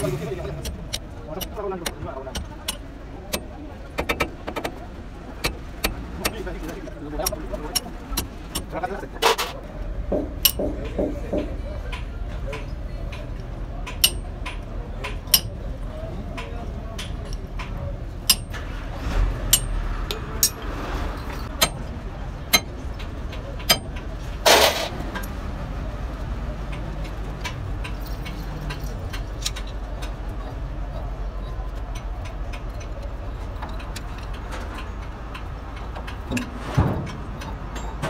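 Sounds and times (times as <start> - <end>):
punch tapping metal nut: 0.0 - 4.7, 14.0 - 14.3.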